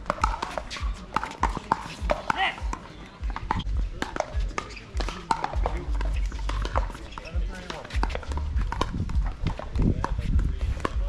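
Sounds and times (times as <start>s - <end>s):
ball taps and thumps on court: 0.0s - 11.0s
shoe squeak: 4.5s - 5.4s, 6.1s - 8.7s.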